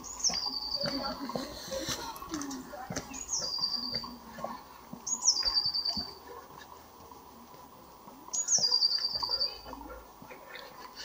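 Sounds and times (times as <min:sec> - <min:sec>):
songbird trilling: 0:03.1 - 0:04.1, 0:05.0 - 0:06.2, 0:08.3 - 0:09.8.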